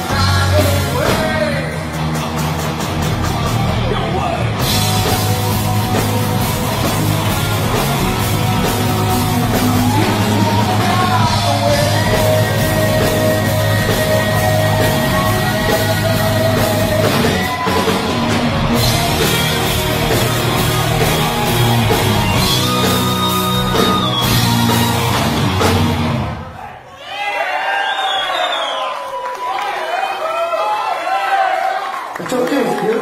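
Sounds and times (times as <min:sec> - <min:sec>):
person singing: 0:00.0 - 0:01.9, 0:08.6 - 0:17.9
bass and drums: 0:00.0 - 0:26.5
distorted electric guitars: 0:00.0 - 0:26.5.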